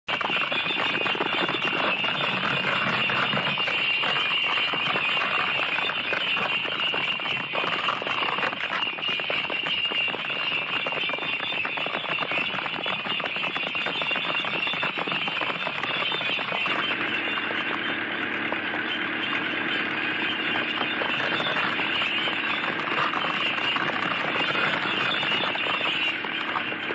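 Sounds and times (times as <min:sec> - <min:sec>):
bullock carts jingling and rattling: 0:00.1 - 0:26.9.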